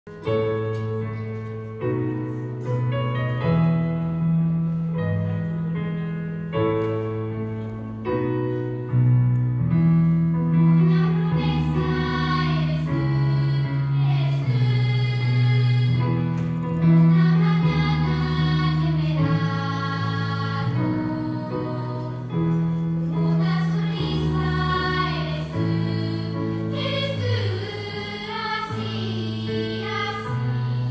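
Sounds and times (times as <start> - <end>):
piano chords: 0.1 - 30.9
girls choir singing: 10.5 - 30.9.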